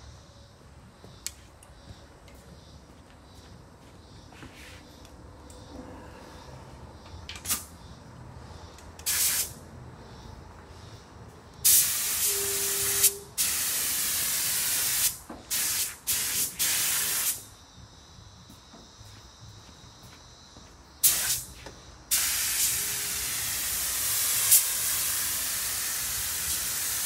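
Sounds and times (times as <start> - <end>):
paint spray gun hissing: 9.0 - 9.6, 11.6 - 17.4, 21.0 - 21.5, 22.1 - 27.0.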